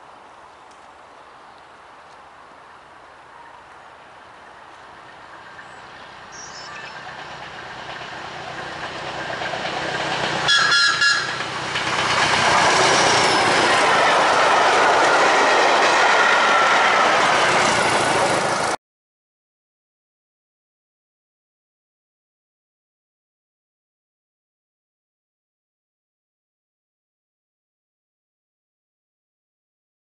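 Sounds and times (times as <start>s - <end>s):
train wheels rumbling on rails: 2.6s - 18.8s
train horn blasts: 10.4s - 11.4s.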